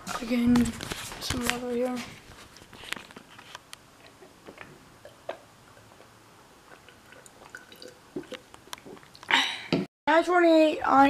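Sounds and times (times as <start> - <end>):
person gulping water: 4.2 - 9.4.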